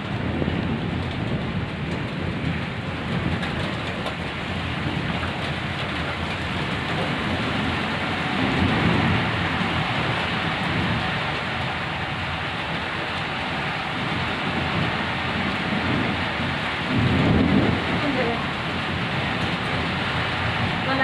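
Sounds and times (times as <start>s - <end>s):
rain pouring: 0.0s - 21.0s
thunder rumble: 0.0s - 21.0s.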